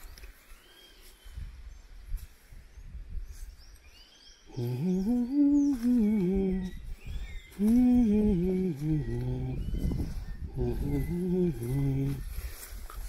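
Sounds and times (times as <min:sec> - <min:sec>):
man humming: 0:04.5 - 0:12.6.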